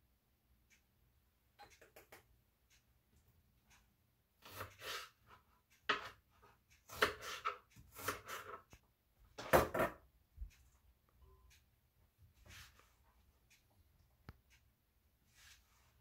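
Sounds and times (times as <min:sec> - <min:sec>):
knife cutting crisp pepper: 0:04.4 - 0:05.2, 0:06.9 - 0:08.6.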